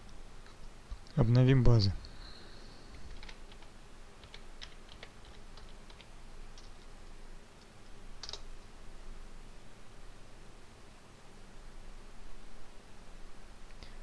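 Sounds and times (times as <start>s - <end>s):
keyboard keys clicking: 3.0s - 6.8s, 8.2s - 8.5s.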